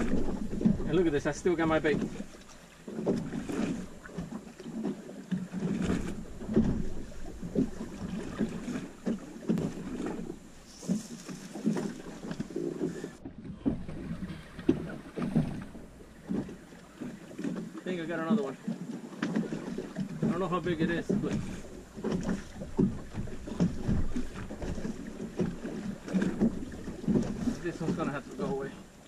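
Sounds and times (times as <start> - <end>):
small waves slapping boat hull: 0.0 - 29.0.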